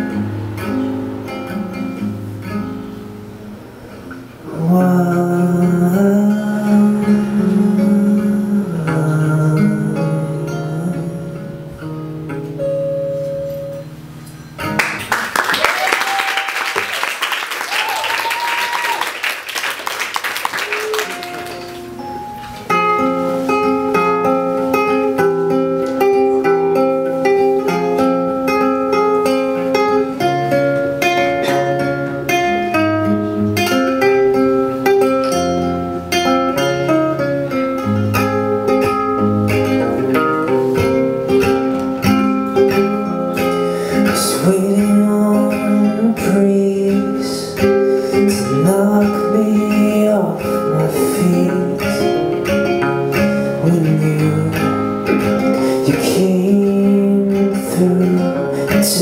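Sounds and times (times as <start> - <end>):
acoustic guitars playing: 0.0 - 59.0
keyboard playing: 12.2 - 15.1, 20.8 - 29.1
audience applause: 14.8 - 22.0.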